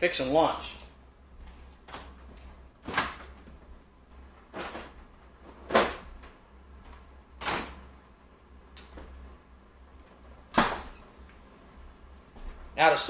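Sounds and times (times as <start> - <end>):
low steady hum: 0.0 - 13.0
refrigerator clunks: 5.6 - 6.1, 7.4 - 7.8, 10.5 - 11.0.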